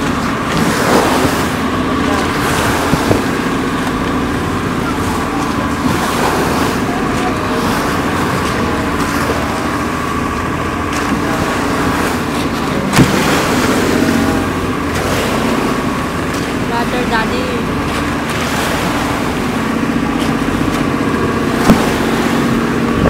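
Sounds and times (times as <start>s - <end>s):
boat engine running: 0.0s - 23.0s
water rushing along hull: 0.0s - 23.0s.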